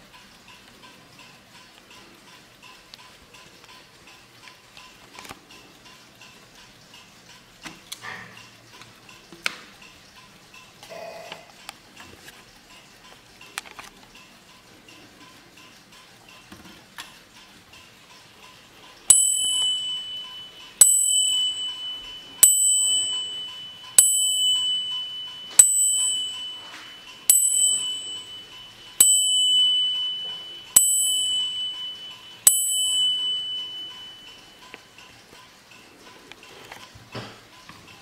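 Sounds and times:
faint clock ticking: 0.0s - 38.0s
clock striking brass bell: 19.1s - 34.8s.

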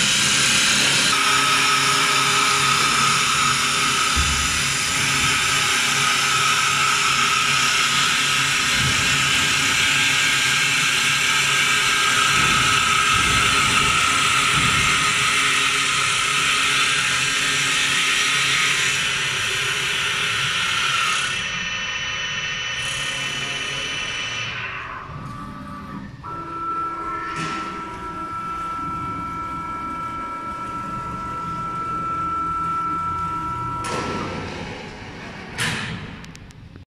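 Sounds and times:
wood lathe hissing: 0.0s - 25.0s, 26.3s - 33.9s
high machine whine: 0.0s - 36.8s.

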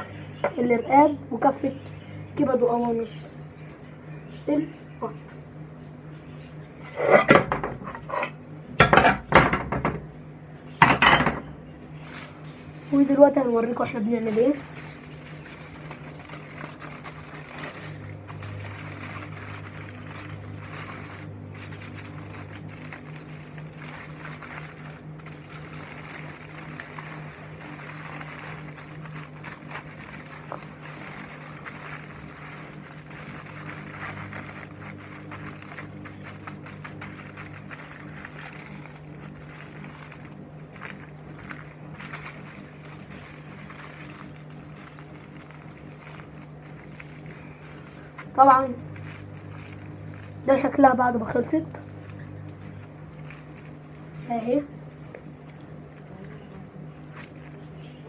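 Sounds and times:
steady low hum: 0.0s - 58.0s
aluminium foil crinkling: 0.1s - 8.3s, 11.9s - 58.0s.

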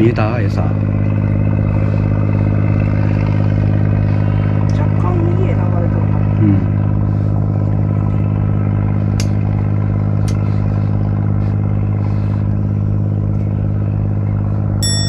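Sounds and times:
machine droning: 0.0s - 15.0s.

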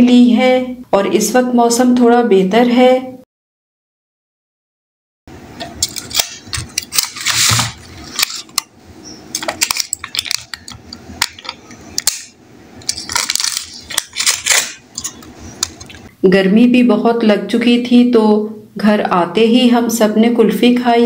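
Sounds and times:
aluminium foil crinkling: 5.8s - 8.7s, 9.3s - 16.1s.

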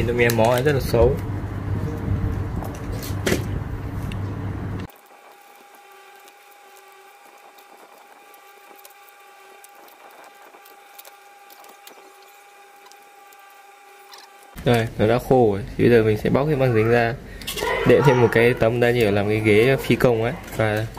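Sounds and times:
loud rumble: 0.8s - 4.9s.

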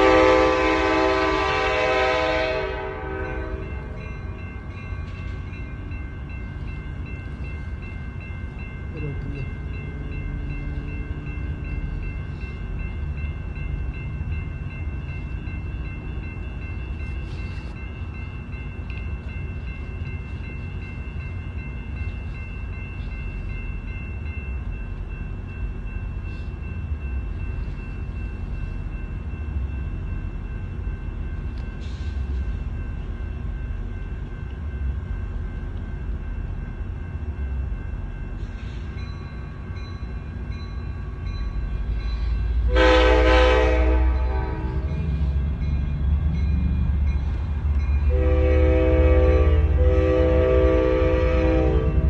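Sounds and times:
train air horn blast: 0.0s - 3.9s, 42.7s - 44.9s, 48.1s - 52.0s.

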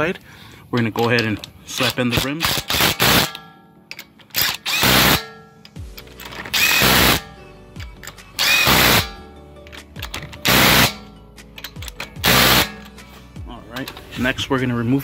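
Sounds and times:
impact wrench bursts: 1.8s - 3.4s, 4.3s - 5.4s, 6.2s - 7.4s, 8.4s - 9.3s, 10.0s - 11.1s, 11.7s - 12.9s.

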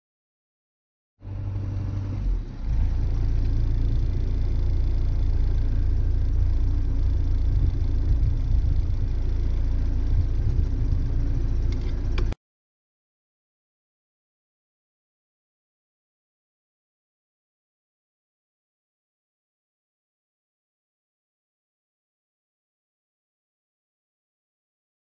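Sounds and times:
boat engine rumbling: 1.2s - 12.4s.

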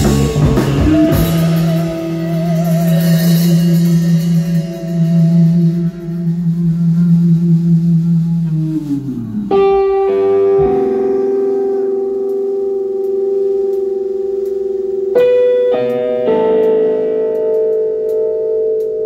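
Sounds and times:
electric bass: 0.0s - 19.0s
keyboards: 8.4s - 19.0s.

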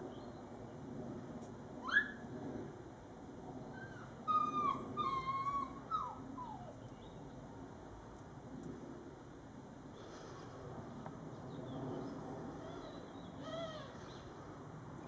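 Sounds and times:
dog whining: 3.8s - 6.8s.

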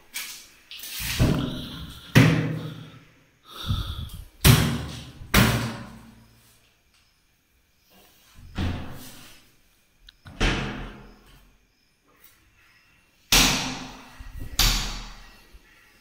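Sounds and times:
cabinet doors banging shut: 4.4s - 6.0s.

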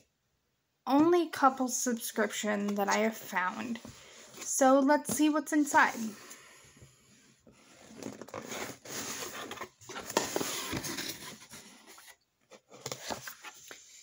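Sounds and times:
cardboard box being opened: 7.6s - 13.8s
paper rustling and crinkling: 7.7s - 14.0s.

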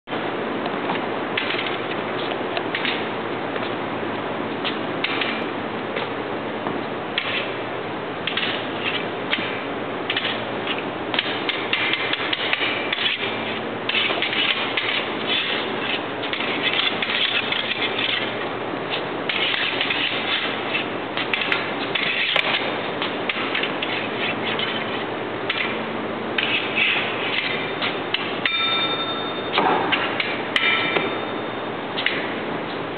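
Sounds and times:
foil blade clicking on metal: 8.2s - 25.8s.

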